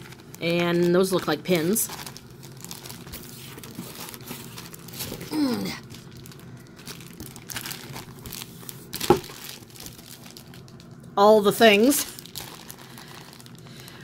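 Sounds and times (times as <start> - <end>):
plastic bags crinkling: 0.0 - 14.0
person humming: 5.1 - 5.8.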